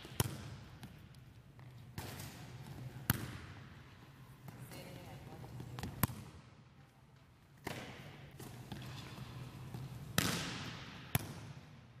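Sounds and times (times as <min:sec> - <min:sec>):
volleyball hits on forearms: 0:10.1 - 0:11.5.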